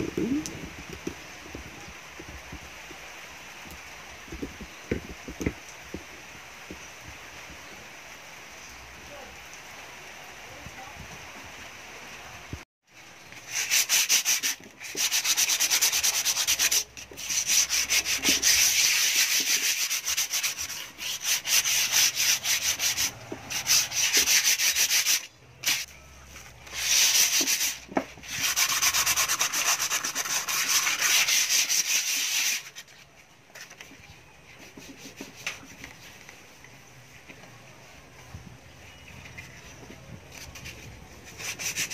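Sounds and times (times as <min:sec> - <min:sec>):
sandpaper rubbing metal grille: 0:13.4 - 0:25.9, 0:26.6 - 0:32.9, 0:40.3 - 0:41.9.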